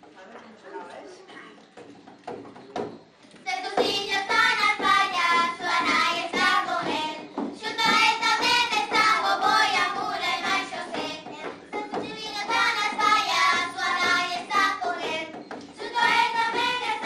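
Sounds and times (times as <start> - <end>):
girls singing together: 3.4 - 17.0.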